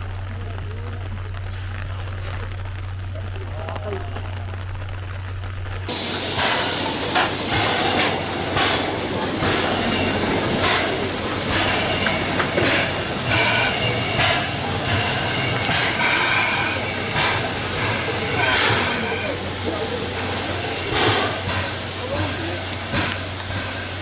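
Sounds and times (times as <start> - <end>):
steam locomotive chuffs: 5.8 - 24.0
steam hissing from locomotive: 5.9 - 24.0.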